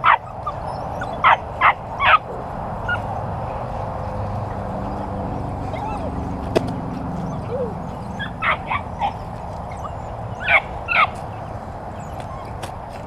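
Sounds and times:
puppy yipping: 0:00.0 - 0:03.1, 0:05.6 - 0:06.3, 0:07.2 - 0:11.2, 0:12.0 - 0:12.7.

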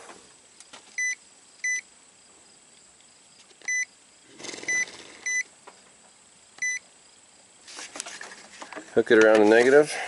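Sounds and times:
short high-pitched beeps: 0:01.0 - 0:01.8, 0:03.7 - 0:03.9, 0:04.7 - 0:05.5, 0:06.6 - 0:06.8
handling rustle: 0:07.6 - 0:10.0.

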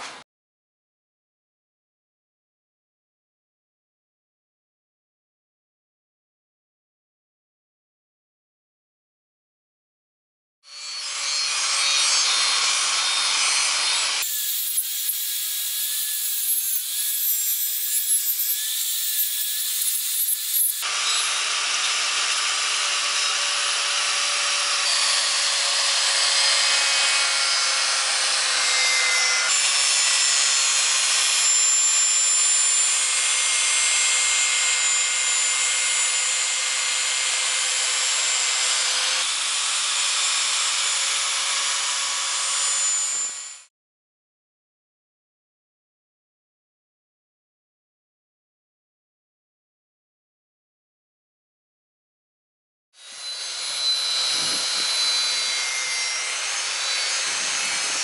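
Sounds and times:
angle grinder motor whine: 0:10.7 - 0:28.2, 0:53.0 - 0:58.0.

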